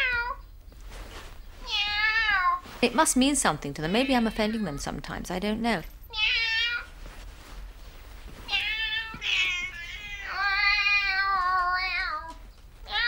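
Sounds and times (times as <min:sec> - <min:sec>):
cat meowing: 0:00.0 - 0:00.4, 0:01.6 - 0:02.6, 0:06.1 - 0:06.9, 0:08.5 - 0:13.0.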